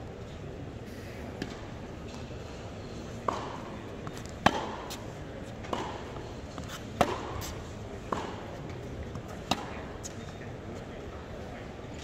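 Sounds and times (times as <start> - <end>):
tennis ball hit by racquet: 3.2 - 3.7, 4.4 - 6.2, 6.9 - 8.6, 9.4 - 9.8
tennis ball bouncing on court: 3.2 - 9.9.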